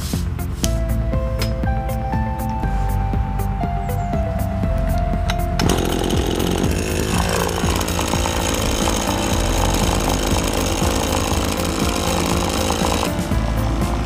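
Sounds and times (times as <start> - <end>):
pole saw engine running: 5.6 - 14.0.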